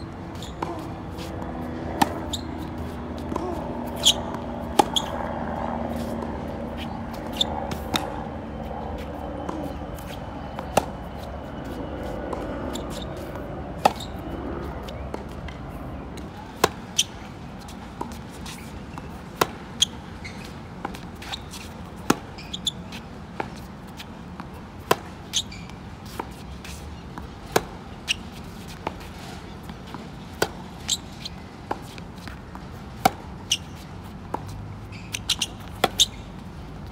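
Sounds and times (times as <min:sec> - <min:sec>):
tennis balls struck by rackets: 0:00.3 - 0:08.5, 0:31.6 - 0:36.9.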